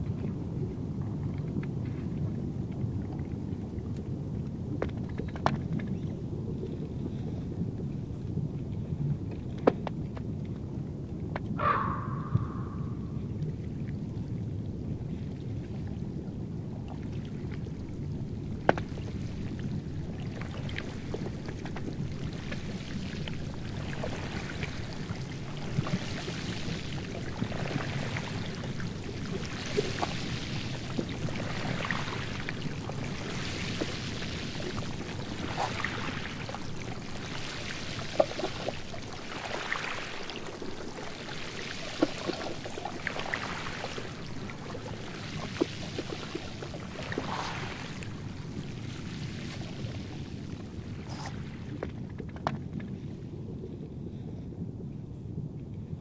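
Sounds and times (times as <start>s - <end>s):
low steady rumble: 0.0s - 20.4s
sea ice crackling and hissing: 5.0s - 9.6s, 15.0s - 55.0s.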